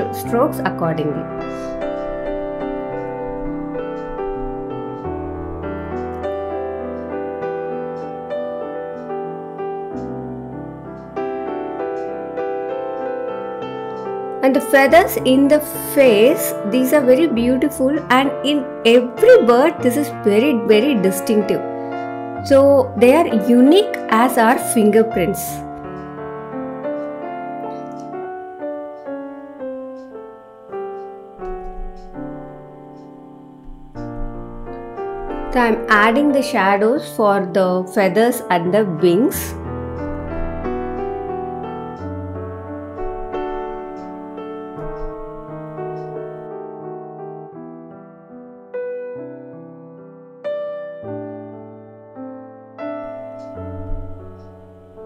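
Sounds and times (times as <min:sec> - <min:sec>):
low bass notes: 0:00.0 - 0:07.3
soft piano music: 0:00.0 - 0:55.0.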